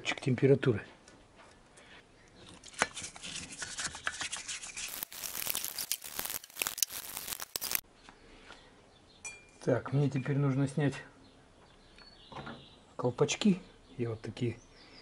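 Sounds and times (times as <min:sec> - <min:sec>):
brush scrubbing metal: 0:02.9 - 0:06.9.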